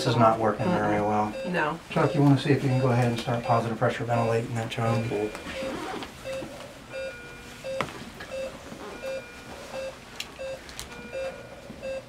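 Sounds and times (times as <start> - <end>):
patient monitor beeping: 0.0 - 12.0.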